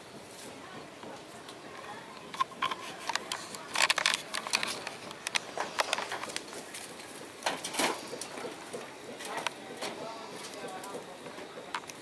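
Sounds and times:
dry leaves and twigs crackling: 0:01.5 - 0:08.6.

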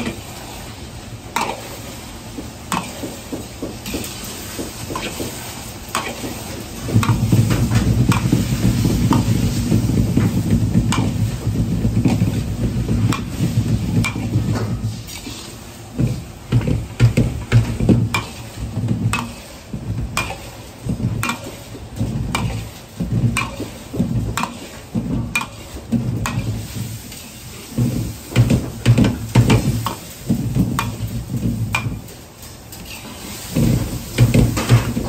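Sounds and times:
egg sizzling: 0:00.0 - 0:35.0
ladle knocking against wok: 0:02.7 - 0:26.9, 0:27.8 - 0:32.1
metal ladle scraping a wok: 0:07.1 - 0:27.4.

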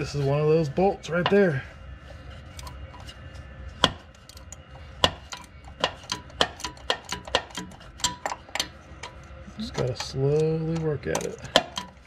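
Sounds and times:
ratchet wrench clicking: 0:05.3 - 0:12.0.

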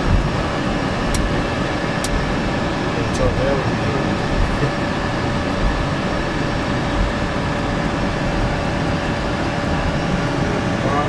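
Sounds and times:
faint steady whine: 0:00.0 - 0:11.0
jet engines and wheels rumbling: 0:00.0 - 0:11.0.

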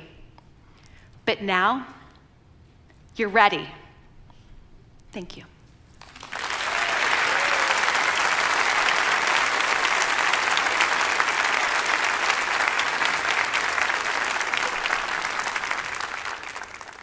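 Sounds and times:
large audience applauding: 0:06.0 - 0:17.0.

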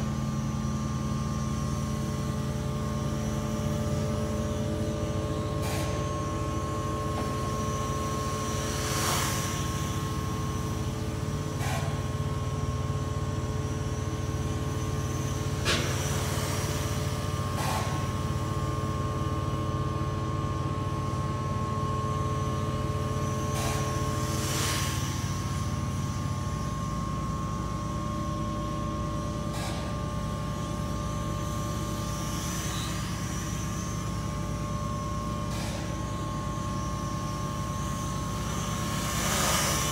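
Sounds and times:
toy drone propellers whirring: 0:32.1 - 0:34.6, 0:37.9 - 0:39.9.

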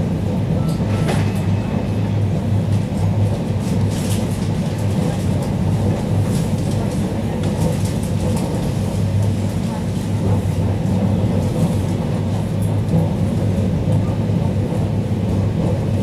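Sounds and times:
train low rumble and hum: 0:00.0 - 0:16.0.

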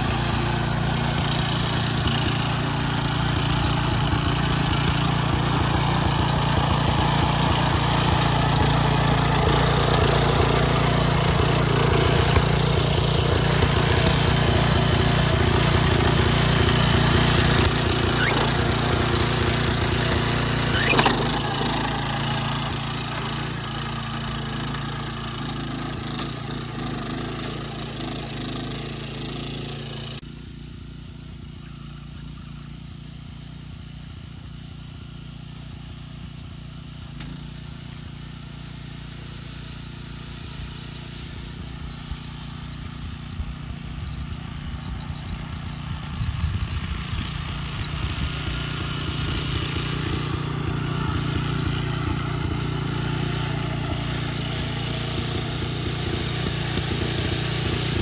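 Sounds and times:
tyres on gravel: 0:00.0 - 0:23.8
small lawn-mower engine running: 0:00.0 - 0:58.0.

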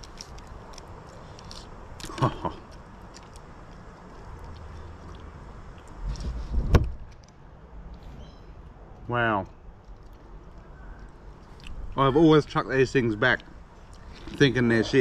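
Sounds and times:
wind rumble on microphone: 0:05.8 - 0:07.2.

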